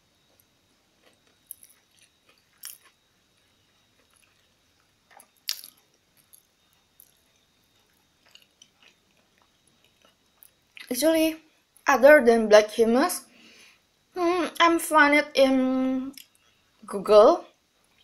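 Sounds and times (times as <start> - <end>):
person chewing food: 0.3 - 10.9.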